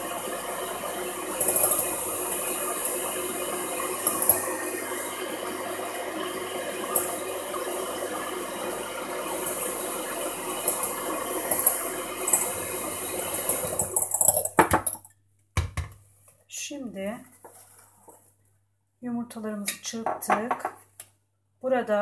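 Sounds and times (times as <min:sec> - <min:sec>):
electric hand mixer whisking: 0:00.0 - 0:14.5.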